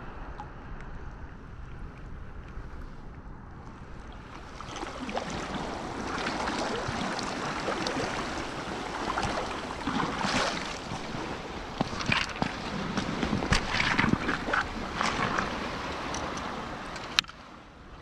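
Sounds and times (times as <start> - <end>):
wind rumble on microphone: 0.0 - 18.0
seawater splashing around a net: 4.2 - 16.1.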